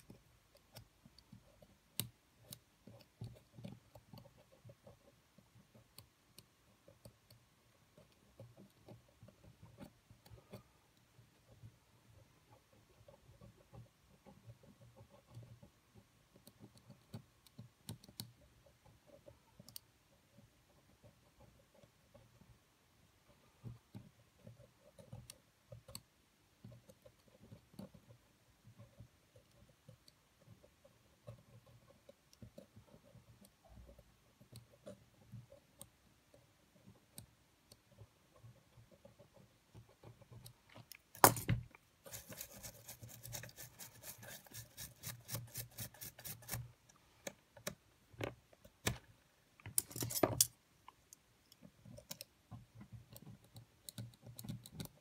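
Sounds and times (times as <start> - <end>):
metal tools clicking and scraping: 49.7 - 50.6.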